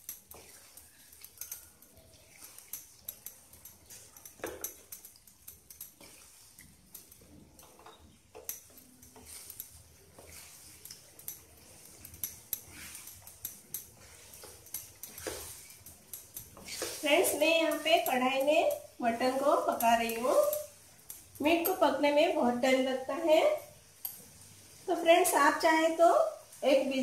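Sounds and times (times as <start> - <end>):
wooden spatula scraping a pan: 0.0 - 4.9, 5.9 - 20.7.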